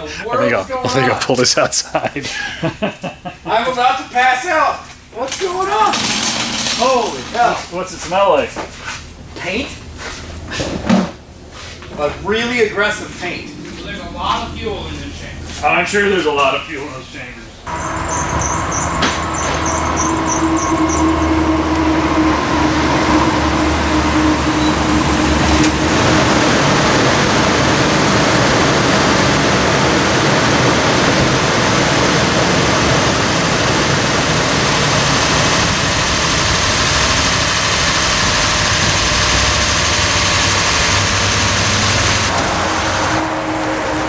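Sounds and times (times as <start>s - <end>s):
steady hum: 0.0s - 44.0s
car engine running loudly: 9.1s - 15.6s, 17.7s - 44.0s.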